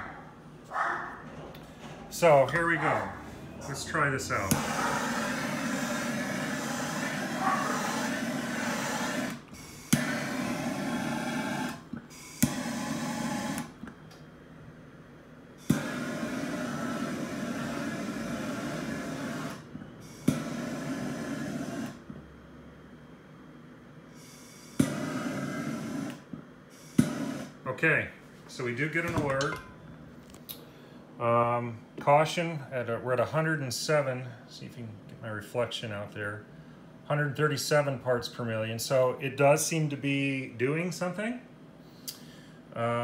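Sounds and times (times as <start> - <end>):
gas torch flame hissing: 3.6 - 13.8, 15.6 - 22.1, 24.1 - 27.6.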